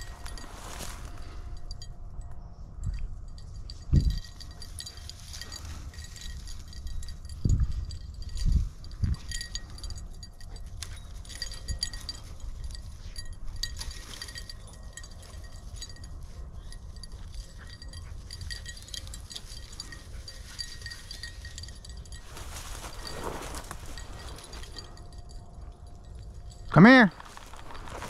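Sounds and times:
dry weeds rustling: 0.0 - 1.8, 3.5 - 28.0
dog collar jingling: 0.0 - 2.0, 2.8 - 28.0
low rumble on microphone: 0.0 - 13.9.

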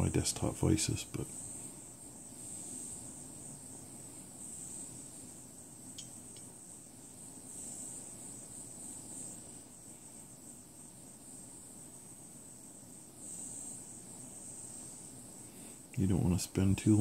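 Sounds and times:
torch flame hissing: 0.0 - 17.0
faint ticks: 5.9 - 6.5.

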